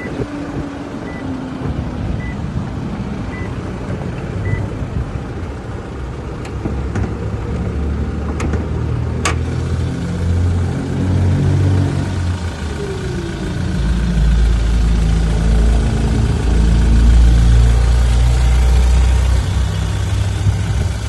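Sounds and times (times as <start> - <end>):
dashboard warning chime beeping: 2.2 - 2.4, 3.3 - 3.5, 4.4 - 4.7
engine idling: 9.4 - 21.0.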